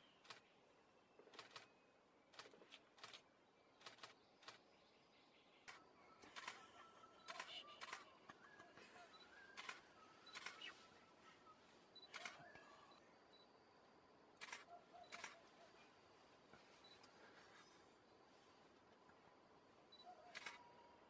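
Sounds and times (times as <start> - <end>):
faint bird calls: 5.3 - 13.6, 14.4 - 18.6, 19.9 - 21.0
camera shutter clicks: 6.4 - 6.6, 7.3 - 8.1, 9.6 - 10.7, 12.1 - 12.4, 14.4 - 15.4, 20.3 - 20.6.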